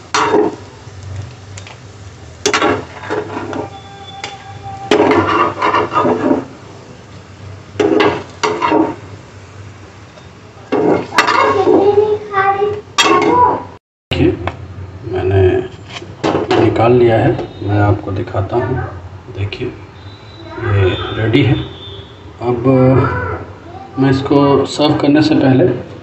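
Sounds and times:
oil sizzling: 0.0s - 13.7s, 15.6s - 25.2s
metal spatula scraping pan: 2.4s - 6.5s.

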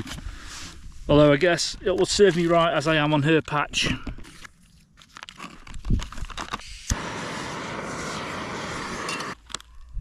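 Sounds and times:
handling clicks and crinkles: 3.4s - 6.6s
gas burner flame hissing: 6.7s - 9.4s.

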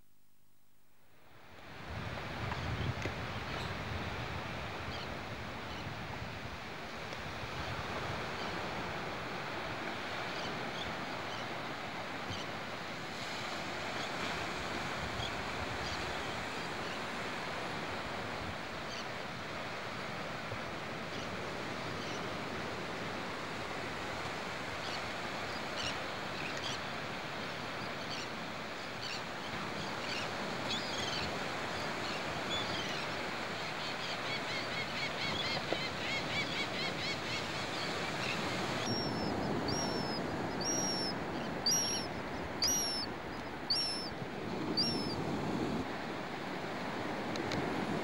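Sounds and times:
surf washing onto beach: 1.6s - 48.0s
birds calling: 32.5s - 45.2s.

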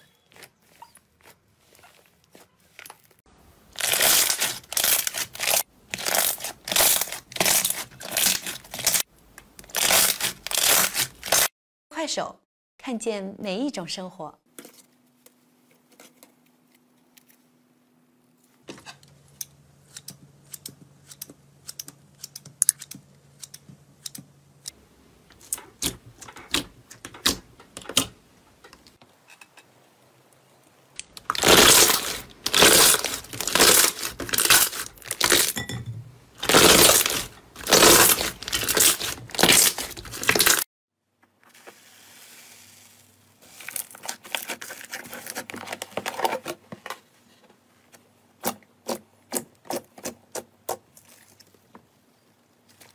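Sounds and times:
wet slime squishes: 36.4s - 40.6s, 48.4s - 51.9s, 52.6s - 52.9s.

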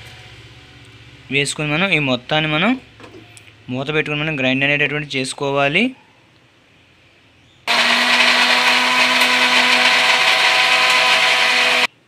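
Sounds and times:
electric mixer grinder running: 7.7s - 12.0s.

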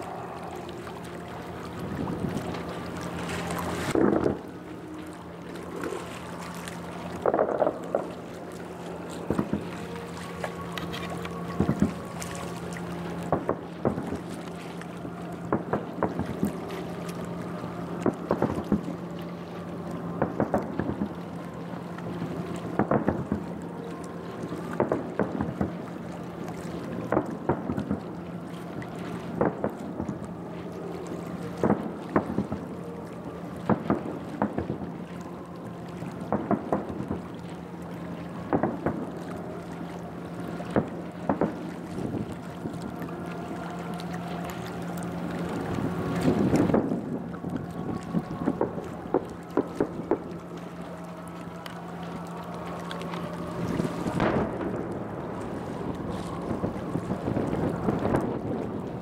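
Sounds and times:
steady low hum: 0.0s - 59.0s
distant fireworks cracking: 40.7s - 42.3s, 53.6s - 58.6s.

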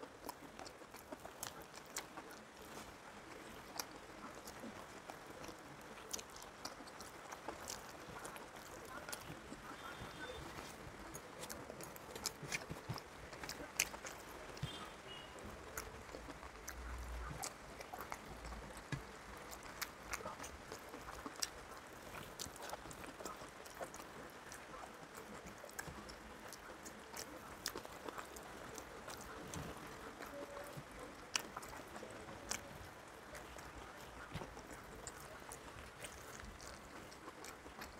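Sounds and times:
person chewing: 0.0s - 37.9s.

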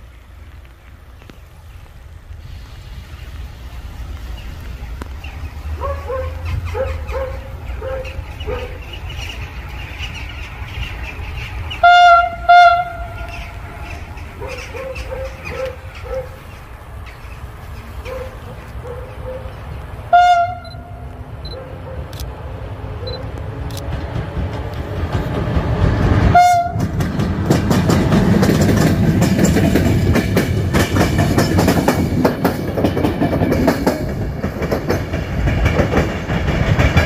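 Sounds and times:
low rumble of train: 0.0s - 37.0s
locomotive horn blasts: 11.8s - 13.3s, 20.1s - 21.0s, 26.3s - 26.9s.

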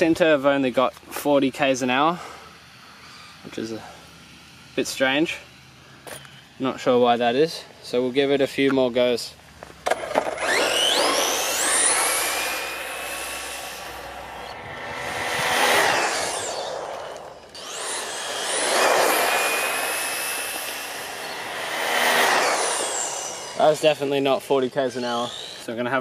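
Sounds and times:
electric motor whine: 1.0s - 7.0s, 9.5s - 26.0s
tyre noise on road: 8.6s - 22.9s.

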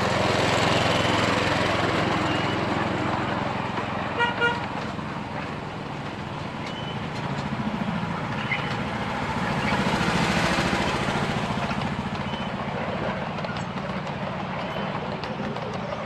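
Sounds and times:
miniature locomotive running: 0.0s - 16.0s
short high squeaks: 6.6s - 7.1s.

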